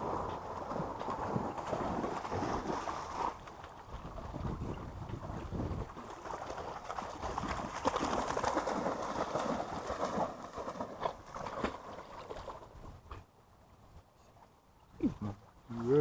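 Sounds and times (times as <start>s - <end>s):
dog splashing through water: 0.0s - 4.4s, 5.2s - 12.8s.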